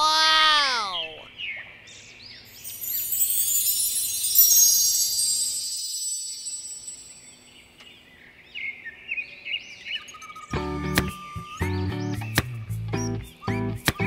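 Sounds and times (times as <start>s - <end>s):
birds chirping: 0.0s - 14.0s
shimmering high ringing tones: 2.5s - 7.8s.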